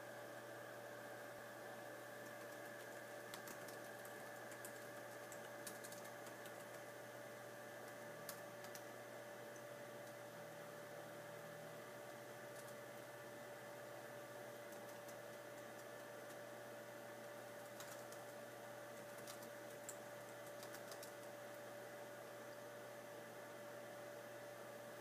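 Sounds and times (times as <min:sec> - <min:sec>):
steady electrical hum: 0:00.0 - 0:25.0
faint small clicks: 0:07.8 - 0:08.9, 0:17.6 - 0:18.3, 0:19.0 - 0:21.3.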